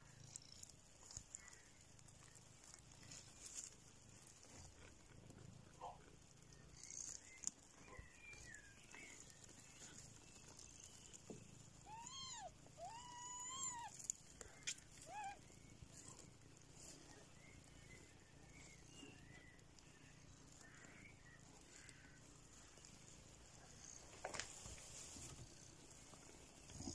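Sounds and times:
kittens mewing: 8.4s - 17.3s.

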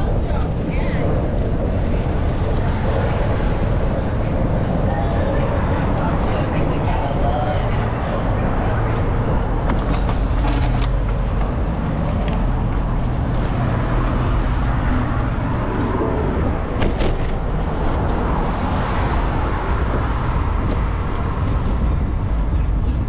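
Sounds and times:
city traffic rumble: 0.0s - 23.0s.

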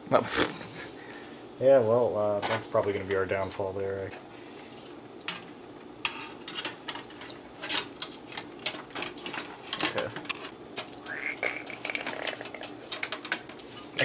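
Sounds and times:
metal parts clicking and knocking: 11.5s - 14.0s.

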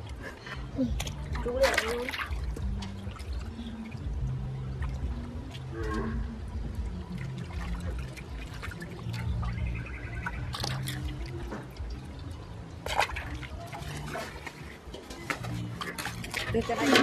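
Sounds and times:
sharp splash: 1.4s - 3.3s, 12.8s - 17.0s.

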